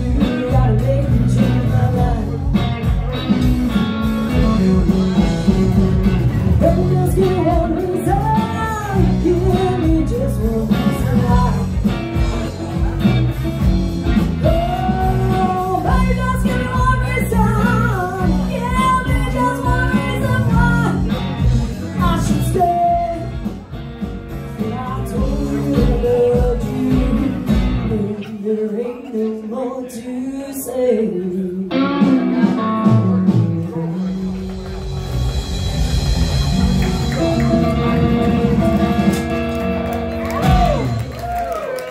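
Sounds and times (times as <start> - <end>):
woman singing: 0.0 - 2.6, 6.6 - 11.9, 14.4 - 21.2, 21.9 - 23.4, 24.6 - 32.5
live rock band playing: 0.0 - 29.5, 30.7 - 41.9
heavy low bass part: 33.0 - 41.4.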